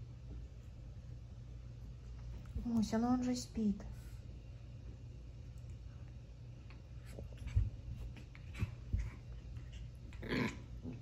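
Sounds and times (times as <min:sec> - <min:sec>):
low steady hum: 0:00.0 - 0:11.0
paws scratching on bedspread: 0:06.8 - 0:10.2.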